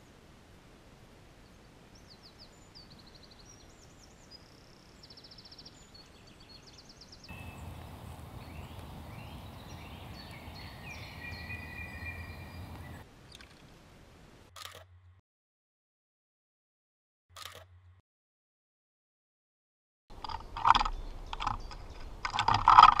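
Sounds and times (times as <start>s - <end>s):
small birds trilling: 5.1s - 13.0s, 20.4s - 22.2s
bird calls with falling notes: 5.1s - 13.7s, 20.4s - 22.2s
low hum: 7.3s - 13.0s.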